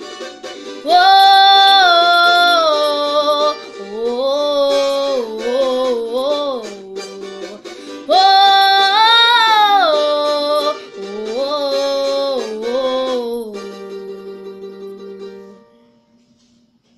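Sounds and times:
girl singing held notes: 0:00.8 - 0:14.9.

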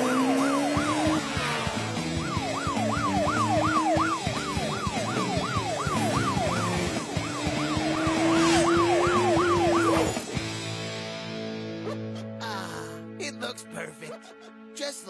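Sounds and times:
cartoon police siren yelping: 0:00.0 - 0:10.2
background music: 0:00.0 - 0:15.0.

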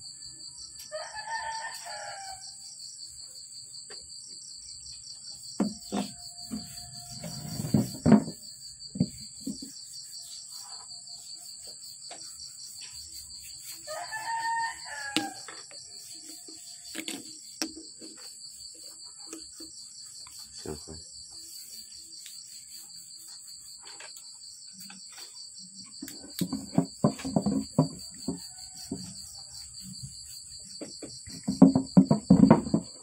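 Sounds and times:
insects chirping: 0:00.0 - 0:33.0
rooster crowing: 0:00.8 - 0:02.6, 0:13.9 - 0:15.6.

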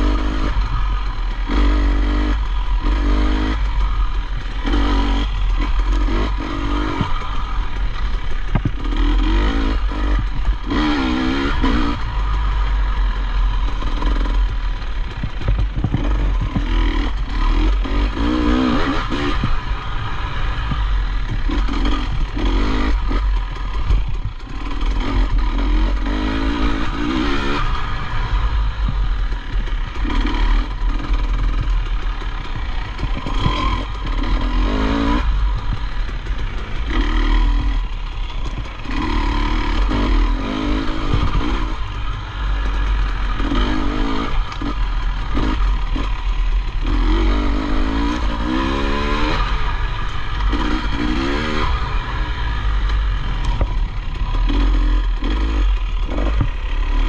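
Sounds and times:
heavy low rumble: 0:00.0 - 0:57.0
motorcycle engine revving: 0:00.0 - 0:57.0
knocks and rattles: 0:06.9 - 0:09.0, 0:13.8 - 0:18.3.

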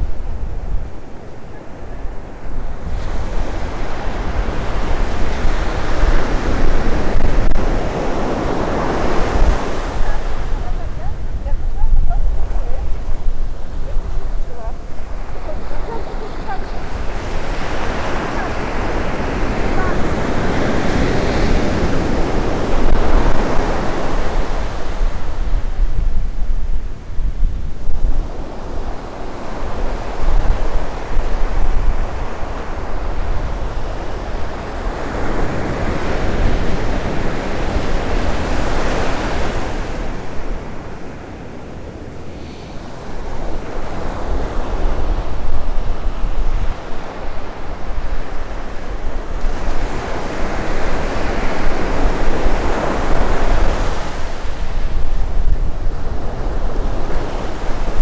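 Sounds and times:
ocean surf breaking: 0:00.0 - 0:27.2, 0:27.8 - 0:58.0
wind buffeting microphone: 0:00.0 - 0:58.0.

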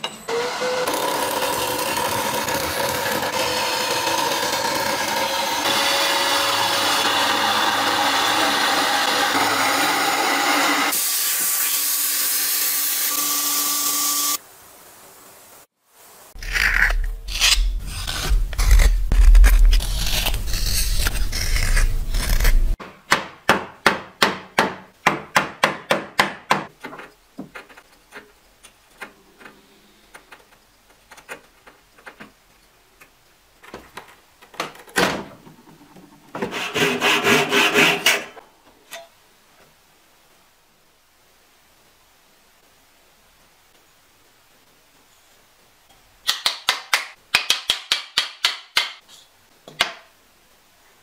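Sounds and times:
scraping on wood: 0:16.4 - 0:22.8, 0:36.3 - 0:38.4
wood rasping: 0:16.4 - 0:22.8, 0:36.4 - 0:38.4
chisel tapping and cutting wood: 0:22.4 - 0:28.3, 0:46.3 - 0:49.0.

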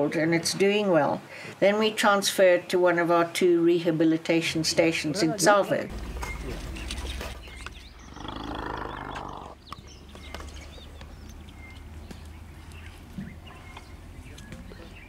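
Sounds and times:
elephant calf roaring: 0:08.0 - 0:09.6.

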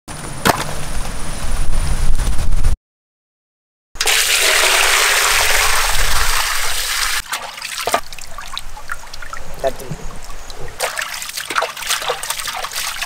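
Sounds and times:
water pouring into metal basin: 0:04.0 - 0:09.4, 0:10.8 - 0:13.0
water splashing and dripping: 0:04.0 - 0:13.0.

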